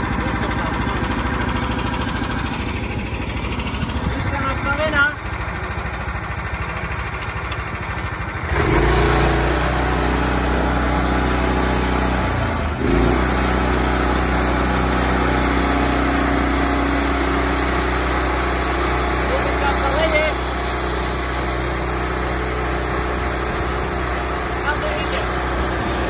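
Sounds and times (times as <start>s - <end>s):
sawmill petrol engine running: 0.0s - 26.0s.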